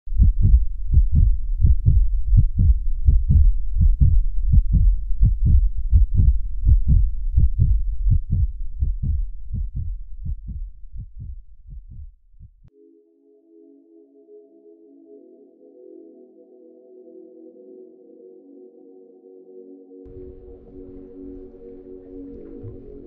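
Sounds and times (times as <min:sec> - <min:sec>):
deep heartbeat-style thumps: 0:00.1 - 0:12.7.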